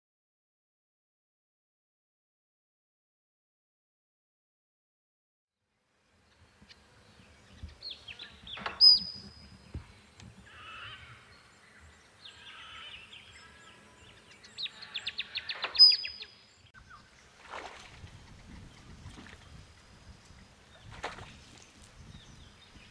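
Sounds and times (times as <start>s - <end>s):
water splashing: 17.1s - 22.0s.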